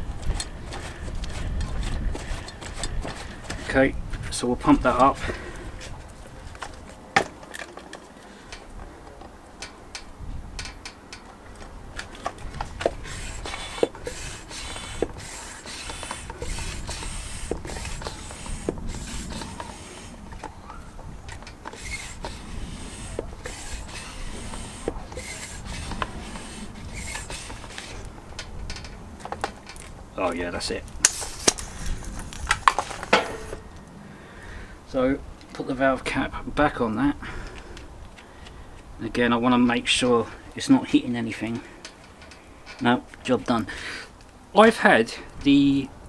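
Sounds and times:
air pump rubbing and scraping: 0:00.0 - 0:06.0, 0:12.4 - 0:28.1, 0:31.0 - 0:33.7.

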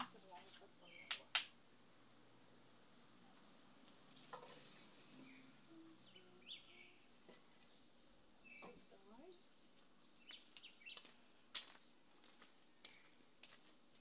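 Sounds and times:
faint bird chirps: 0:04.2 - 0:11.4.

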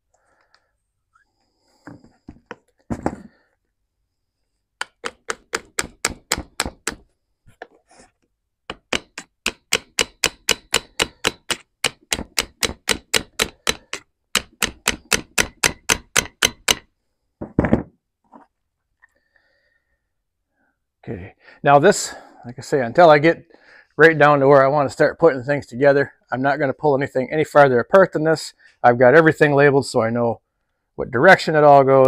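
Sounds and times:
rapid hammer taps on metal: 0:08.7 - 0:16.8.

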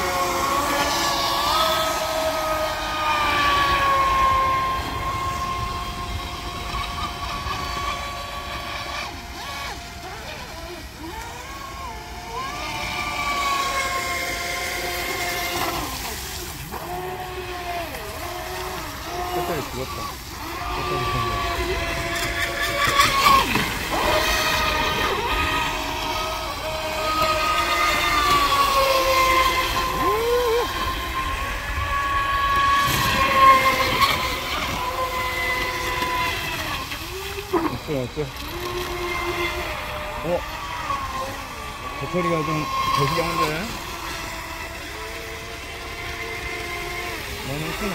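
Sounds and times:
electric motor whining: 0:00.0 - 0:47.9
hull and spray hissing on water: 0:00.0 - 0:47.9.

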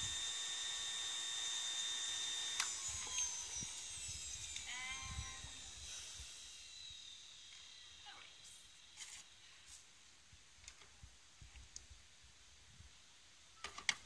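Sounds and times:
juicer motor whining: 0:00.0 - 0:08.0.

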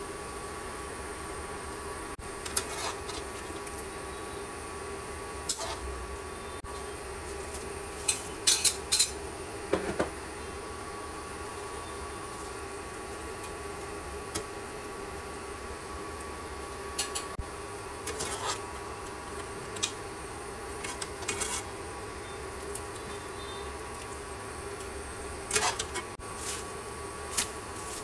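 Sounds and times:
steady hum: 0:00.0 - 0:28.0
utensils clinking against pan: 0:08.0 - 0:09.2.

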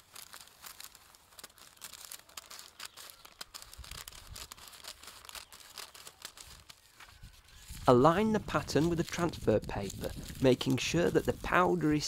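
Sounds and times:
scissors snipping paper: 0:00.0 - 0:07.6
stiff paper rustling: 0:00.0 - 0:12.0.

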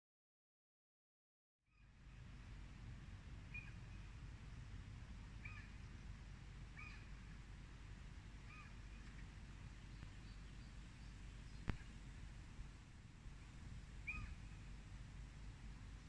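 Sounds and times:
low steady rumble: 0:01.7 - 0:16.0
bird short call: 0:14.0 - 0:14.5.

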